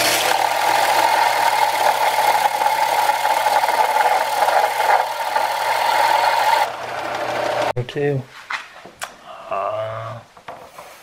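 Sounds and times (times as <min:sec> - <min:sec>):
belt sander sanding wood: 0:00.0 - 0:07.7.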